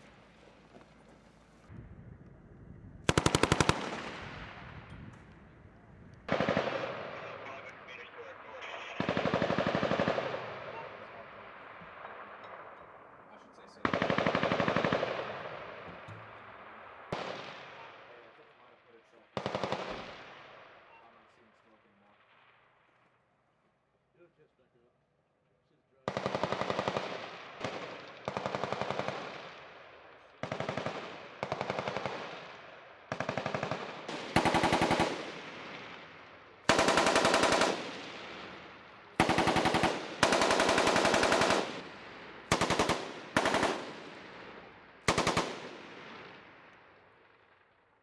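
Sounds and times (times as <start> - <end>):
machine gun firing bursts: 3.1 - 4.2, 6.3 - 7.2, 9.0 - 10.9, 13.8 - 15.8, 19.4 - 20.3, 26.1 - 29.6, 30.4 - 35.8, 36.6 - 38.6, 39.2 - 41.9, 42.5 - 44.3, 45.0 - 46.2.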